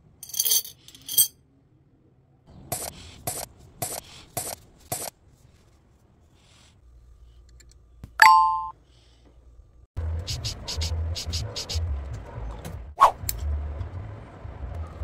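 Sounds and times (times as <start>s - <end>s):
screws clinking against glass jar: 0.2s - 1.3s.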